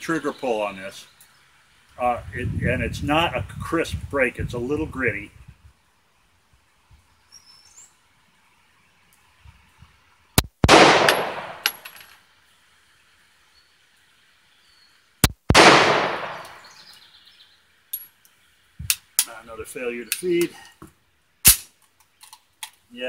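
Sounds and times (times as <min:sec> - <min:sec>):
pistol shots with ringing decay: 0:10.6 - 0:11.8, 0:15.5 - 0:16.8.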